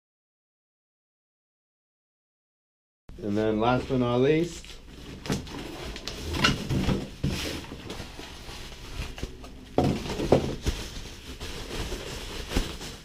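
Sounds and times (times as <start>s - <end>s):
packaging rustling and crinkling: 3.7s - 13.0s.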